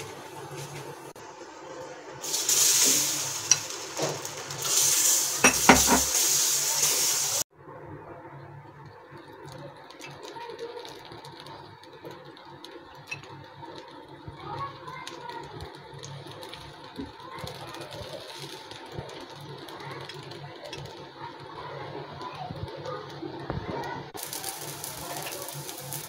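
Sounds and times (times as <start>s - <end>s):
hot pan hissing and sizzling: 0.0s - 7.5s, 9.9s - 26.0s
batter scraping on pan: 5.4s - 6.3s.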